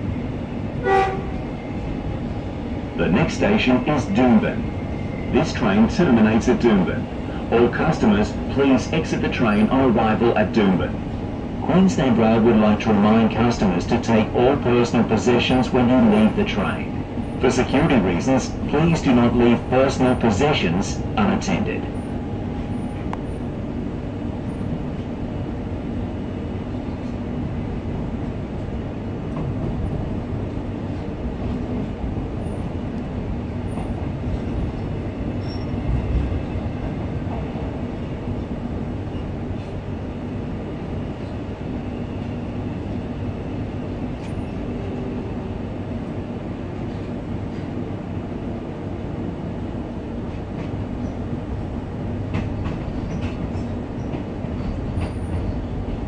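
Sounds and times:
train wheels rumbling on track: 0.0s - 56.0s.

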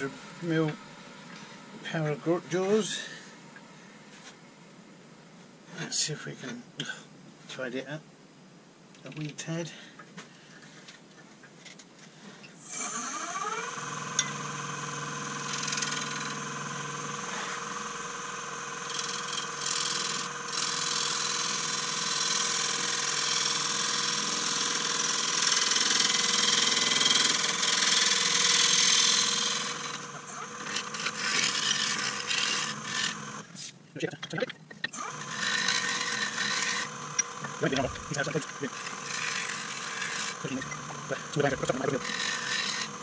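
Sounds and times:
lathe motor whine: 12.6s - 33.5s, 34.9s - 43.0s
gouge cutting wood hiss: 14.0s - 33.8s.

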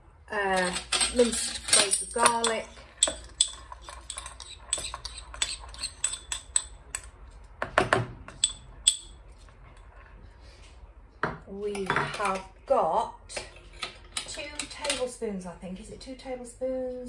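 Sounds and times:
metal spoon clinking on bowl: 0.6s - 7.1s, 8.3s - 9.2s.

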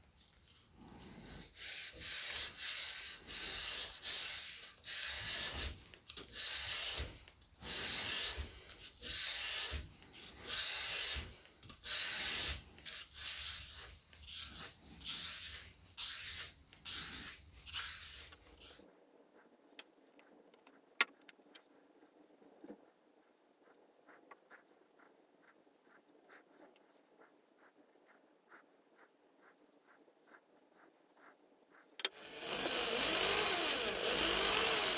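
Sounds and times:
abrasive block sanding steel blade: 1.5s - 9.8s, 10.4s - 18.8s.

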